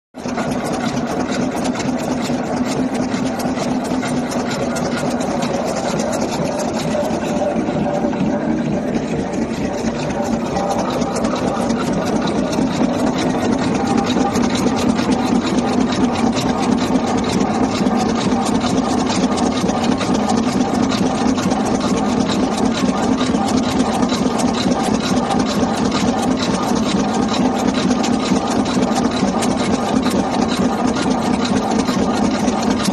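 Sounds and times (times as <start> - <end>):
machine low hum: 2.8 - 24.3.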